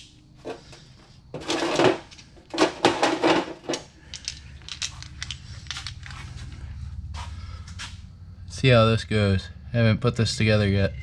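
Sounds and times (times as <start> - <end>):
metal parts clicking: 1.4 - 6.3.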